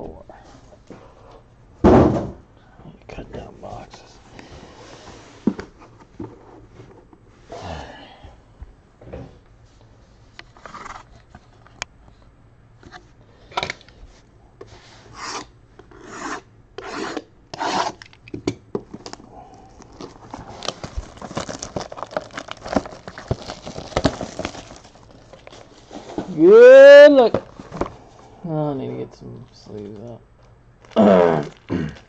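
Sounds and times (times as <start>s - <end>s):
cardboard boxes scraping: 20.0s - 26.4s.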